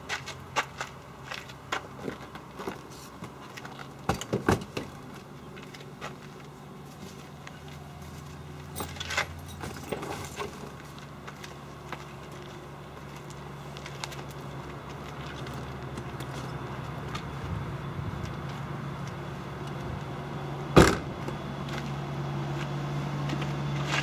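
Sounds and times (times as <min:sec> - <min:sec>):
gear being loaded into car: 0:08.6 - 0:11.6
steady low hum: 0:10.6 - 0:24.0.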